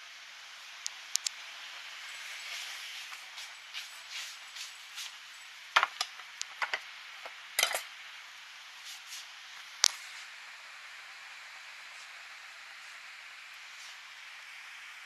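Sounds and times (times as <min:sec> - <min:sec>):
steady background hiss: 0:00.0 - 0:15.0
metal pet bowls clinking: 0:07.6 - 0:07.9.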